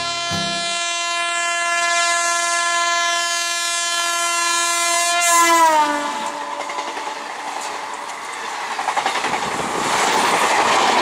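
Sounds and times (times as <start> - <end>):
electric locomotive horn blast: 0.0 - 6.8
rush of passing train: 4.1 - 11.0.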